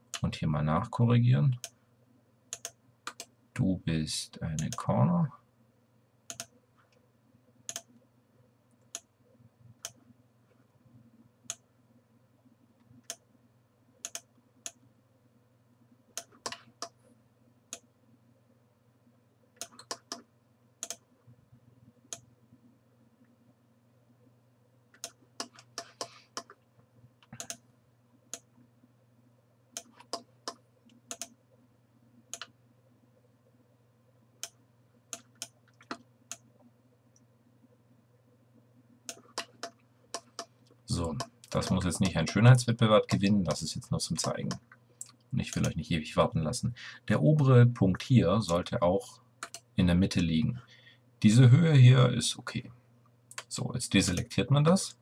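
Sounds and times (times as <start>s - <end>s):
faint low hum: 0.0s - 55.0s
computer mouse clicking: 2.5s - 3.3s, 6.3s - 7.0s, 7.7s - 8.0s, 8.8s - 9.1s, 12.9s - 13.2s, 14.0s - 14.8s, 16.2s - 17.0s, 19.6s - 21.1s, 24.9s - 26.6s, 27.2s - 27.6s, 29.7s - 31.4s, 32.3s - 32.6s, 34.4s - 36.5s, 39.0s - 42.4s, 44.2s - 45.8s, 49.4s - 49.7s.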